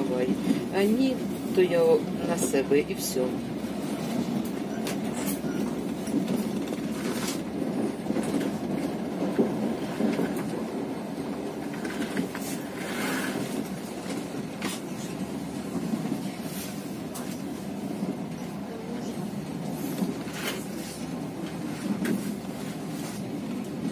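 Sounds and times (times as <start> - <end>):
train carriage rumble: 0.0 - 23.9
wheels clacking over rail joints: 11.3 - 15.2.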